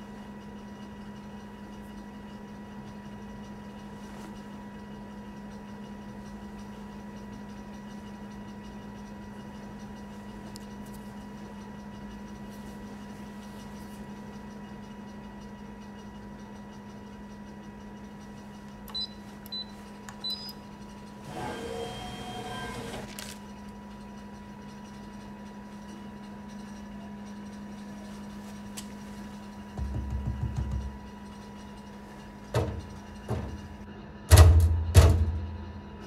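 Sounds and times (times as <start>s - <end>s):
vending machine humming: 0.0s - 36.0s
vending machine motor whirring: 0.0s - 36.0s
keypad beeps: 18.9s - 20.6s.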